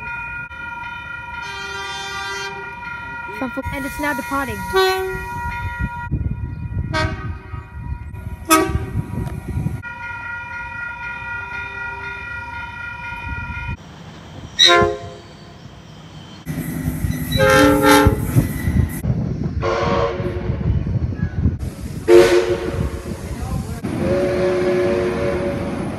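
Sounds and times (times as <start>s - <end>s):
train running rumble: 1.2s - 25.9s
train horns: 1.4s - 5.4s, 6.8s - 7.6s, 8.4s - 9.1s, 14.6s - 15.3s, 17.2s - 18.5s, 19.6s - 20.7s, 22.0s - 23.1s, 23.9s - 25.9s.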